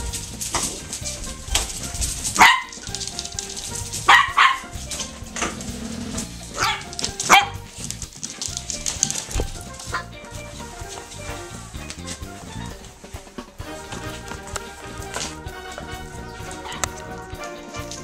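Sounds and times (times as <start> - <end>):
puppy barking: 1.2 - 7.8, 16.3 - 18.0.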